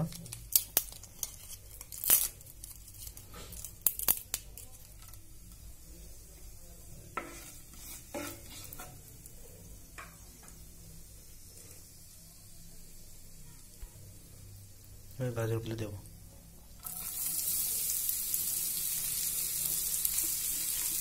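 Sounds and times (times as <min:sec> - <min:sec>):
faint sizzle: 0:00.0 - 0:21.0
spatula scraping frying pan: 0:07.1 - 0:09.1.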